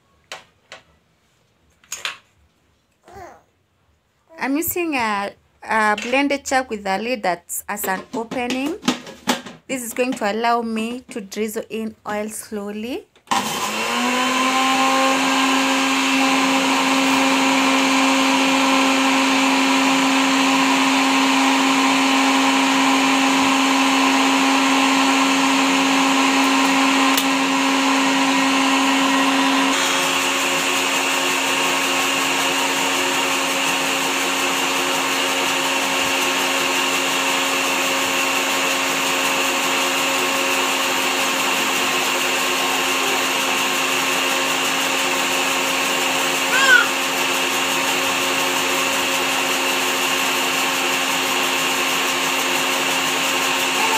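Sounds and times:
blender motor running: 13.3s - 53.9s.

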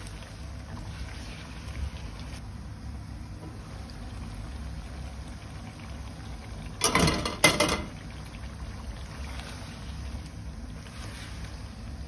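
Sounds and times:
food simmering in a pan: 0.0s - 12.0s
low rumble of gas hob: 0.0s - 12.0s
metal lid and spatula clattering: 6.8s - 7.9s.

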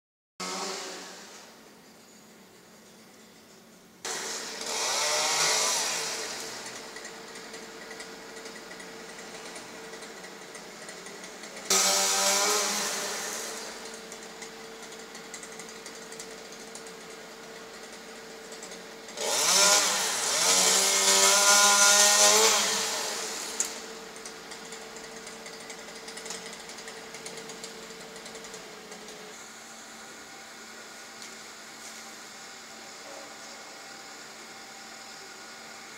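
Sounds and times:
chainsaw revving: 0.4s - 1.4s, 4.0s - 29.4s.

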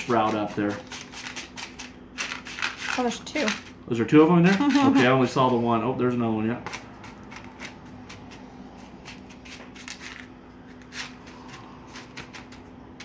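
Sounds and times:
grain rustling in foil pan: 0.0s - 3.6s.

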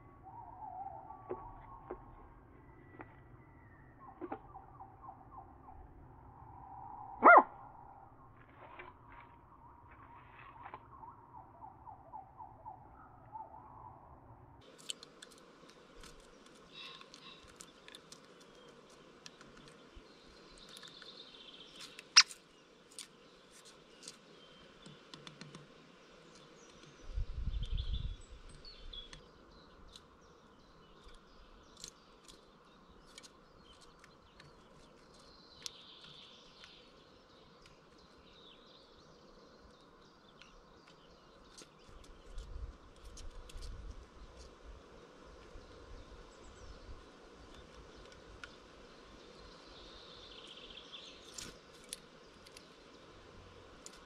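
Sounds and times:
faint birdsong: 0.0s - 54.0s
woodpecker tapping wood: 14.8s - 19.8s, 24.8s - 25.7s
wind rumble on microphone: 27.0s - 29.2s, 42.2s - 44.8s.

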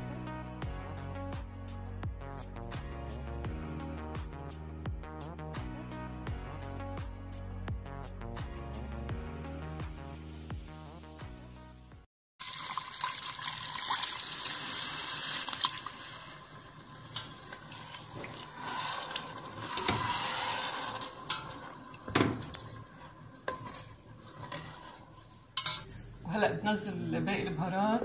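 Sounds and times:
liquid pouring into pot: 12.4s - 25.8s
spatula stirring and knocking pot: 17.2s - 26.0s.

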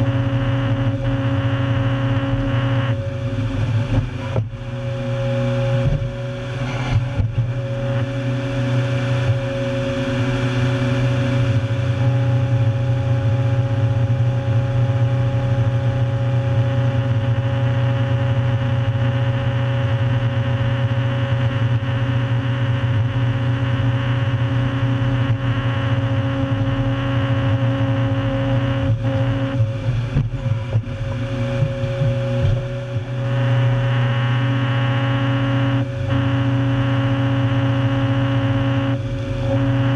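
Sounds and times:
heavy machine engine drone: 0.0s - 39.9s.

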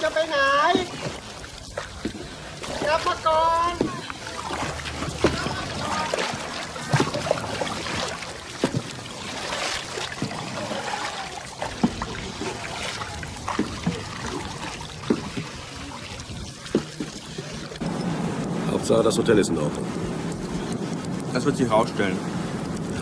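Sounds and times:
paddle splashes: 0.0s - 17.8s
water dripping off paddles: 0.0s - 23.0s.

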